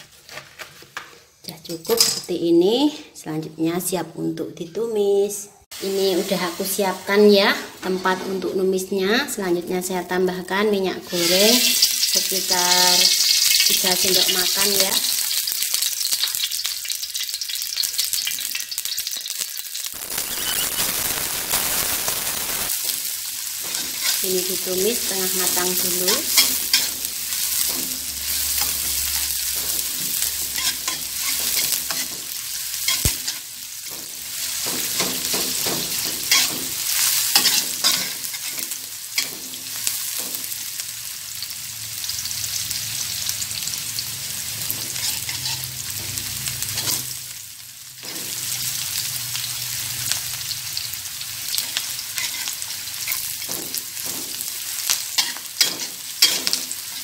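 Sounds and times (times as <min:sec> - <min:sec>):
shallots sizzling in hot oil: 0:05.7 - 0:57.0
metal spatula scraping a pan: 0:22.8 - 0:40.6, 0:44.6 - 0:47.2, 0:51.5 - 0:57.0.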